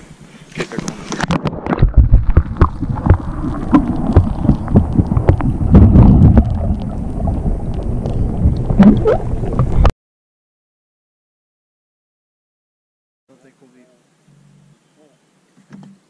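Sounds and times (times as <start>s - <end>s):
underwater water movement rumbling: 0.7s - 9.9s
dull knocks underwater: 1.2s - 9.9s.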